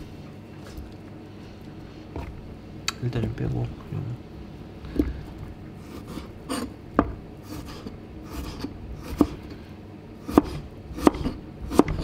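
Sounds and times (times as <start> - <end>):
knife blade scraping: 5.9 - 6.8.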